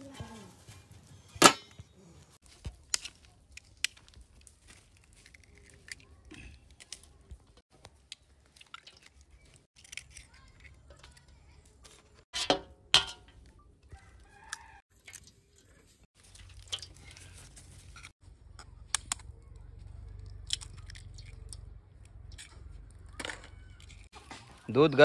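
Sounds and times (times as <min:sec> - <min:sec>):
rooster crowing: 0:13.9 - 0:14.8.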